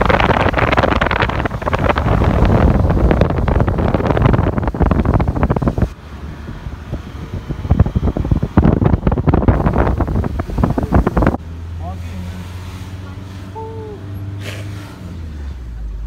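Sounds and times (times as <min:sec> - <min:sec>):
wind buffeting microphone: 0:00.0 - 0:11.4.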